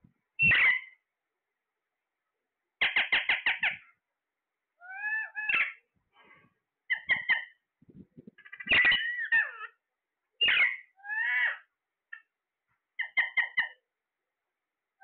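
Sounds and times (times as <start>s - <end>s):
parakeets squawking: 0.4s - 1.0s, 2.8s - 3.8s, 4.8s - 5.8s, 6.9s - 7.6s, 8.4s - 9.8s, 10.4s - 11.7s, 13.0s - 13.8s.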